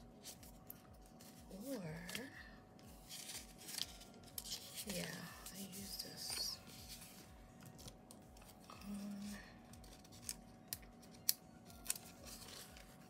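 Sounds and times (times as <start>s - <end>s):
paper stickers clicking: 9.8s - 13.0s.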